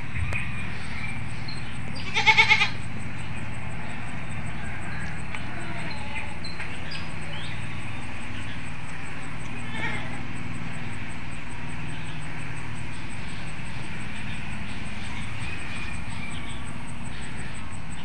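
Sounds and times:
low background hum: 0.0 - 18.0
goat bleating: 2.0 - 2.8, 4.6 - 6.4, 9.6 - 10.2.

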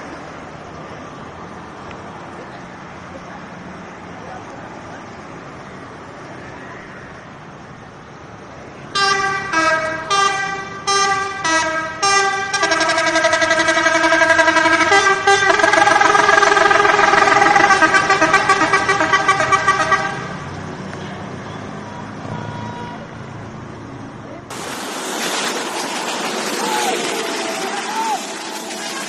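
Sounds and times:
musical bus air horn: 8.9 - 20.4.

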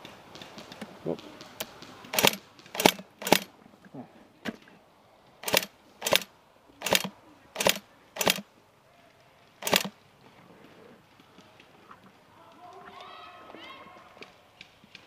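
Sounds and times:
airsoft gun shots: 1.5 - 3.5, 5.4 - 8.4, 9.6 - 9.9.

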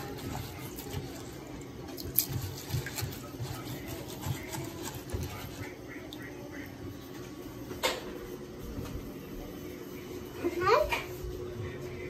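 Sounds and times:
water sloshing: 0.0 - 6.3.

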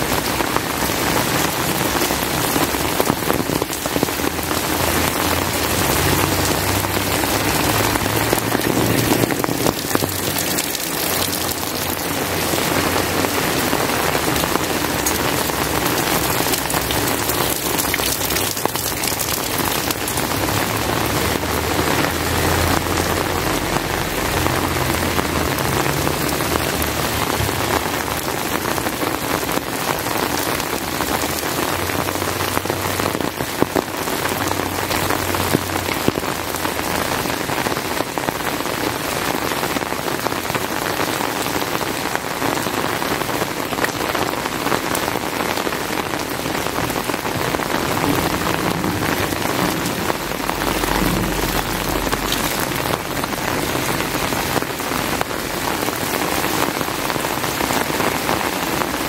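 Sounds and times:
heavy rain on hard surfaces: 0.0 - 59.0
low rumble: 47.5 - 54.3.

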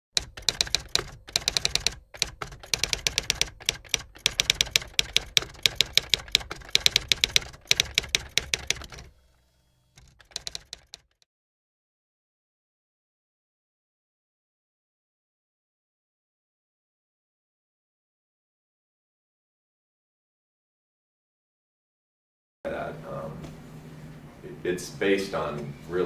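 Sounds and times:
keyboard typing clicks: 0.2 - 9.1, 10.0 - 11.2.

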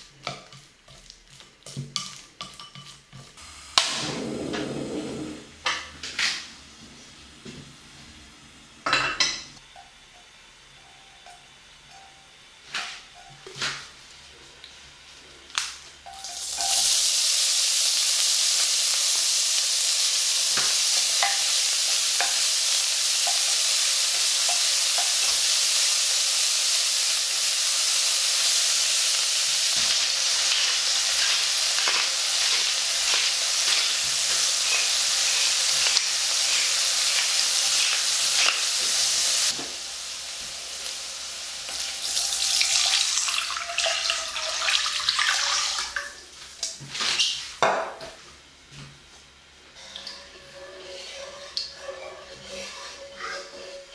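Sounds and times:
meat sizzling in oil: 16.0 - 46.3
liquid pouring: 42.1 - 46.0.

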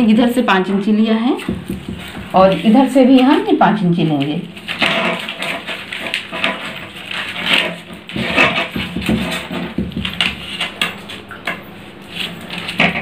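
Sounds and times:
newspaper rustling and crinkling: 1.4 - 11.3.

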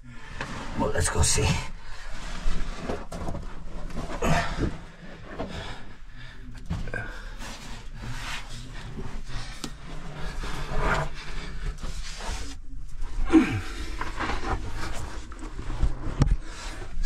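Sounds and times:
body scraping over rock: 1.7 - 17.0
person grunting: 13.3 - 13.8.

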